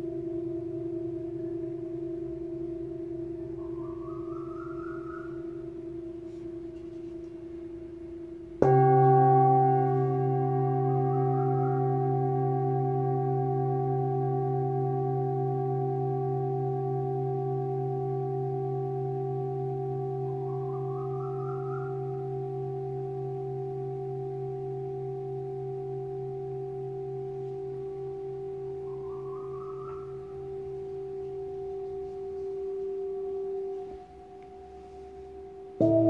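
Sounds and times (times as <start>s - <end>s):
singing bowls ringing: 0.0s - 36.0s
faint high rising tone: 28.6s - 36.0s.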